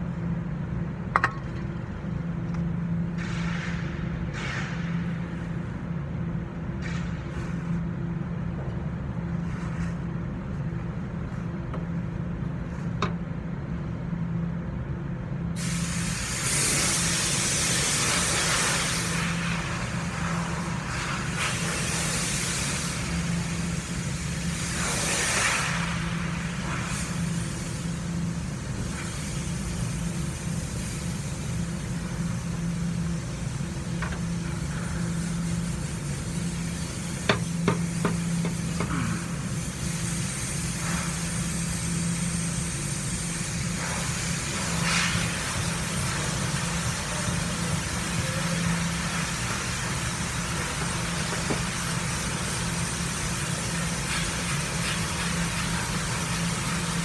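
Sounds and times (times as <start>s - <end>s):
low machine hum: 0.0s - 57.0s
hissing air bursts: 3.0s - 5.7s, 15.6s - 57.0s.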